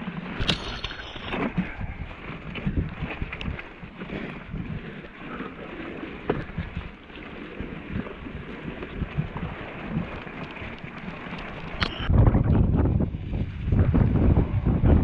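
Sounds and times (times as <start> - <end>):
wind buffeting microphone: 0.0 - 15.0
bike rattling: 0.3 - 1.8.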